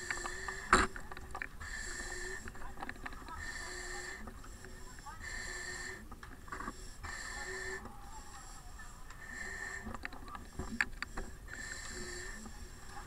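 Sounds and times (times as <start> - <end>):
breathing through a facepiece: 0.0 - 13.0.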